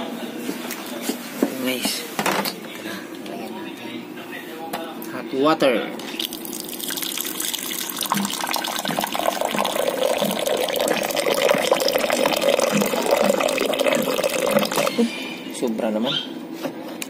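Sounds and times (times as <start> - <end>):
water pouring into cup: 6.0 - 15.6.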